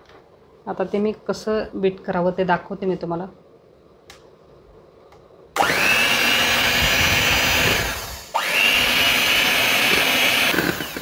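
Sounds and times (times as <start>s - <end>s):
electric mixer whining: 5.6s - 11.0s.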